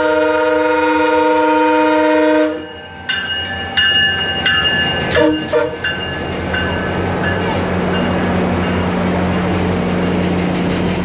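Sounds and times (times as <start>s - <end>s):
train horn blast: 0.0s - 2.7s, 5.1s - 5.8s
bell ringing: 2.4s - 9.1s.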